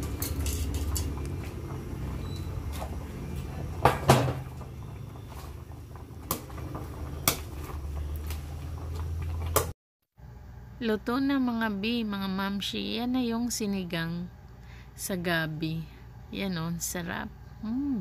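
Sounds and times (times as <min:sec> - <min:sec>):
metal tongs clinking on pot: 0:00.0 - 0:01.2.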